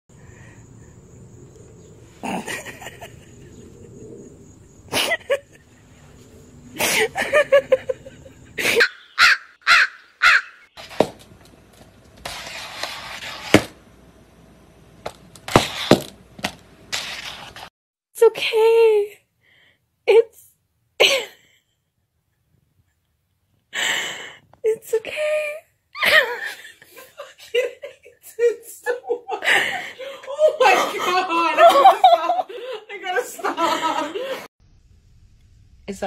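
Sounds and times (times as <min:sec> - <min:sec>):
crow cawing: 0:08.8 - 0:10.7.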